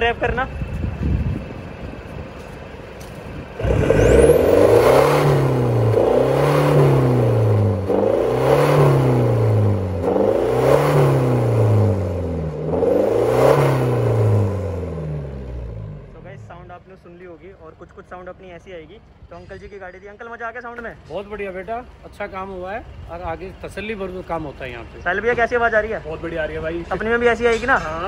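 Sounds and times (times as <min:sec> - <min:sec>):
diesel engine revving: 0:00.0 - 0:17.5.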